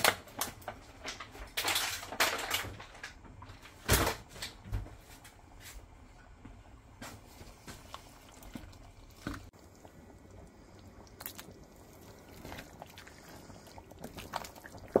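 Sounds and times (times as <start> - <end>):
wooden spoon stirring soup: 6.5 - 15.0.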